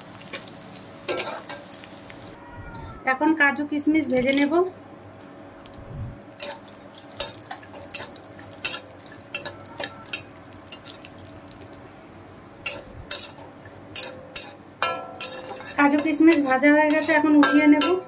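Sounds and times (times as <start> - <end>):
frying in oil: 0.0 - 18.0
metal spatula scraping a pan: 12.6 - 18.0.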